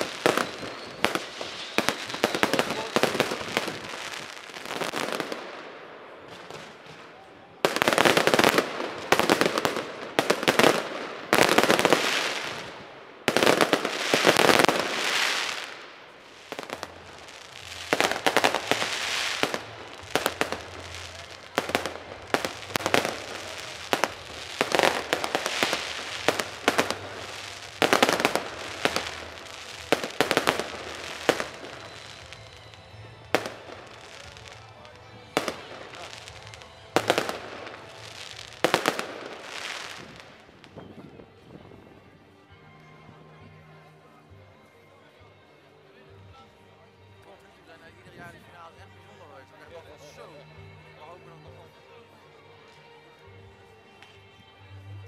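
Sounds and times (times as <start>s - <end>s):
firework bangs: 0.0s - 32.4s, 35.4s - 40.4s
firework crackling: 0.0s - 40.8s.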